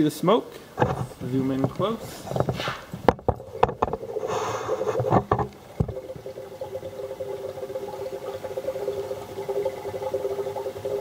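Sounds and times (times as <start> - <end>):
oil bubbling and crackling: 0.6 - 11.0
sharp knocks: 0.8 - 4.0, 5.0 - 6.0.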